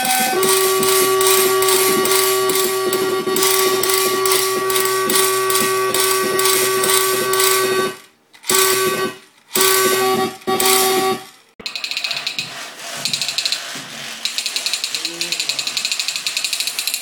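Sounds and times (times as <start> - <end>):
electronic buzzing tones: 0.0 - 11.3
regular electronic ticking: 0.0 - 17.0.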